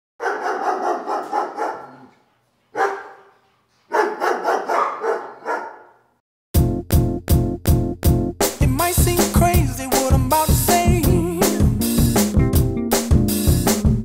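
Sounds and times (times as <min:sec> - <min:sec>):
dog barking: 0:00.2 - 0:06.1
music with heavy beat: 0:06.6 - 0:14.0.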